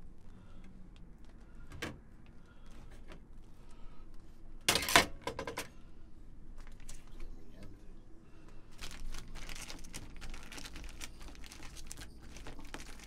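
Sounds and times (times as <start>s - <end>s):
plastic bag crinkling: 8.7s - 13.0s.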